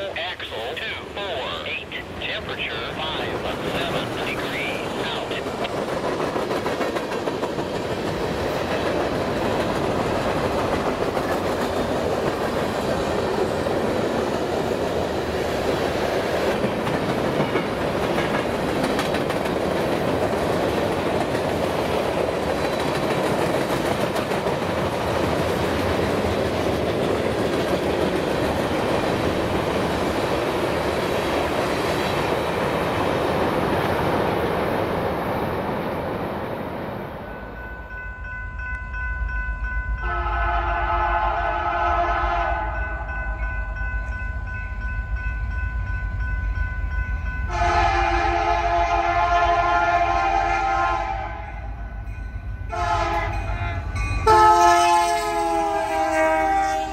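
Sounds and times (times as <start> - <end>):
train wheels rolling on rails: 0.0 - 39.8.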